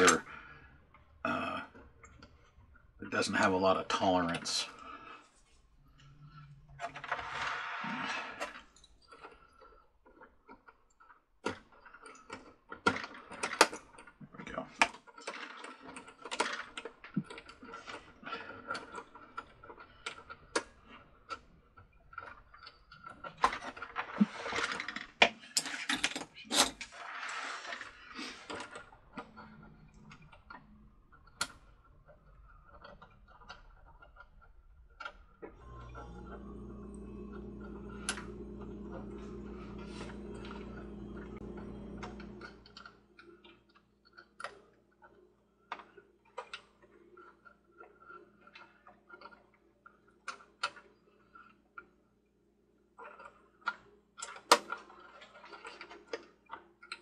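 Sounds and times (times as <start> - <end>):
small parts clicking and clinking: 6.0 - 27.0.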